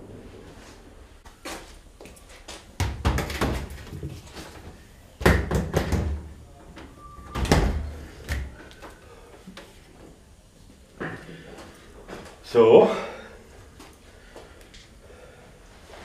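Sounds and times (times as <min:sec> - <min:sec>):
knocks and clatter of hard objects: 0:02.8 - 0:04.3.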